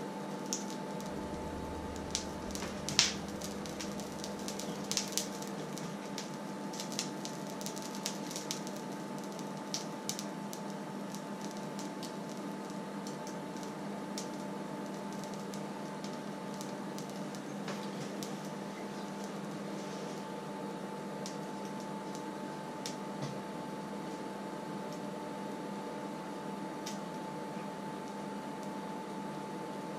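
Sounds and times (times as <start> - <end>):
steady hum: 0.0 - 10.0
oil crackling in a pan: 0.2 - 23.1.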